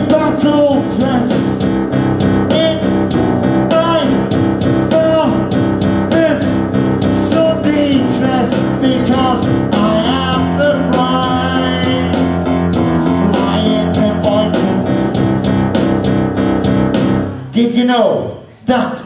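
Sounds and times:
person singing into microphone: 0:00.0 - 0:01.7, 0:03.7 - 0:15.4
guitar: 0:00.0 - 0:17.6
steady drum beat: 0:00.0 - 0:17.6
live rock music through speakers: 0:00.0 - 0:18.8.

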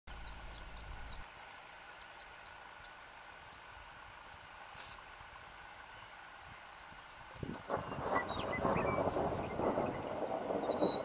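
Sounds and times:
birds chirping: 0:00.1 - 0:11.0
bird trills: 0:07.6 - 0:11.0.

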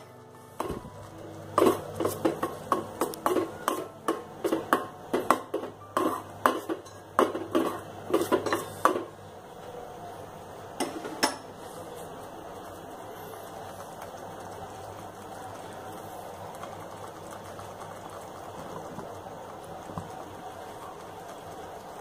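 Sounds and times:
spoon clinking against steel pot: 0:01.6 - 0:09.1.

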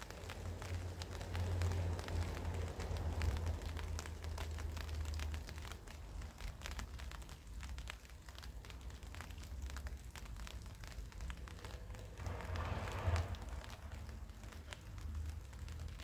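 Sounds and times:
rain falling: 0:00.0 - 0:16.0
raindrops ticking on surfaces: 0:00.0 - 0:16.0
low rumble: 0:11.2 - 0:15.9.

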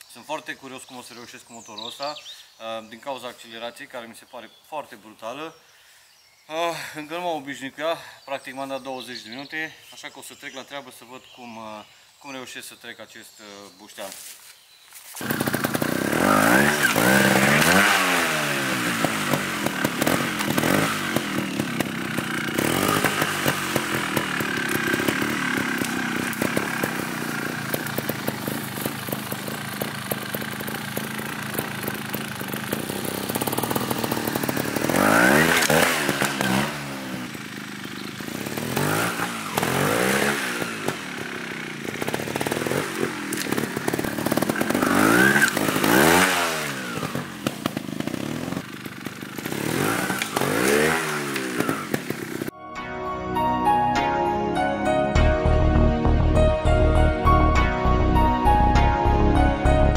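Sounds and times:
motorcycle engine revving: 0:15.2 - 0:52.5.

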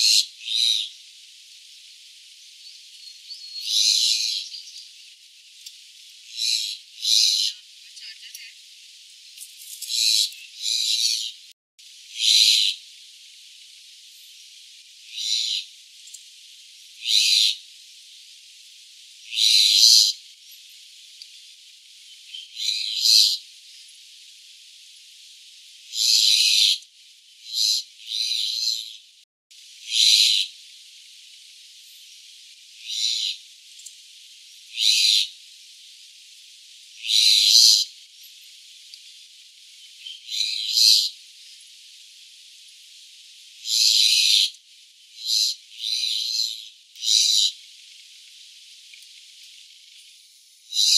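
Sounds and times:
myna bird calling: 0:02.7 - 0:04.9, 0:06.3 - 0:08.6, 0:09.9 - 0:11.5, 0:15.1 - 0:15.7, 0:17.0 - 0:17.6, 0:29.9 - 0:30.5, 0:32.8 - 0:33.4, 0:34.7 - 0:35.3, 0:37.0 - 0:37.9, 0:40.0 - 0:41.2, 0:45.2 - 0:47.6.

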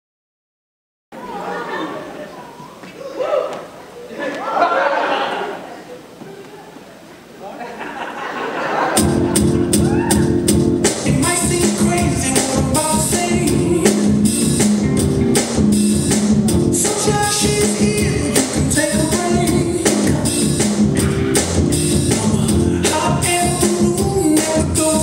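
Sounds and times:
drum-kit beat: 0:08.9 - 0:25.0
person singing: 0:09.4 - 0:14.6, 0:16.5 - 0:25.0.

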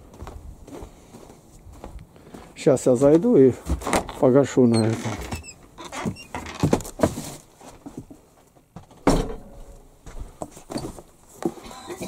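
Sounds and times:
footsteps: 0:00.0 - 0:12.0
heavy thump: 0:09.0 - 0:09.8.

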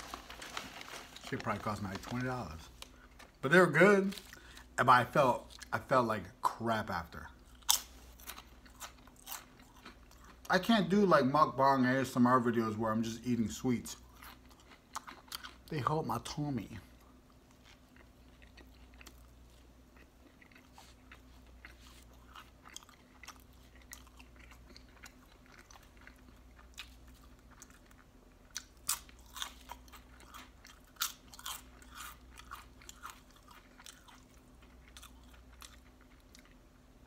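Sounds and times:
close chewing with mouth smacks: 0:07.4 - 0:10.5, 0:14.0 - 0:15.8, 0:17.0 - 0:36.6.

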